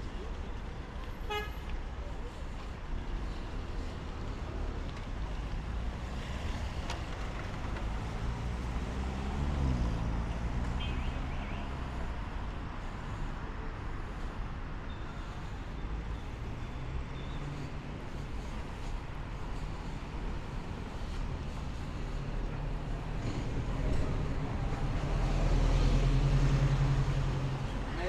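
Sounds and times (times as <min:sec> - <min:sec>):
rumble of passing cars: 0:00.0 - 0:28.0
vehicle engine passing by: 0:05.3 - 0:12.9, 0:19.5 - 0:27.9.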